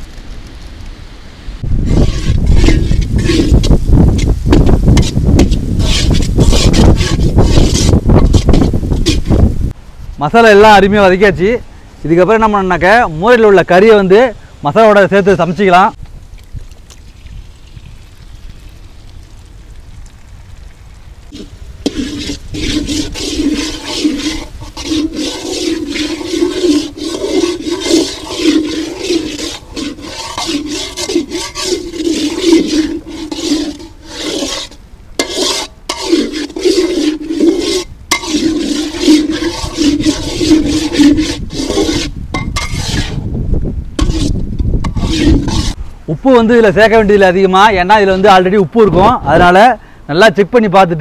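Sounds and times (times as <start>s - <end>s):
spatula scraping iron pan: 1.8s - 9.5s, 21.3s - 43.3s, 44.0s - 45.8s.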